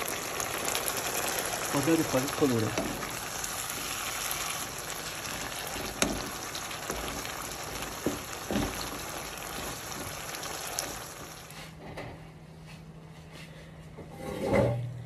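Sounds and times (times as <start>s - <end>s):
vegetables sizzling in oil: 0.0s - 11.7s
wooden spoon knocking on pan: 5.6s - 11.3s.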